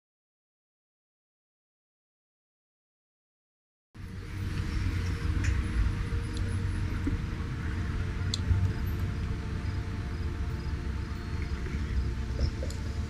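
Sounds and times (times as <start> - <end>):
low background rumble: 4.0 - 13.0.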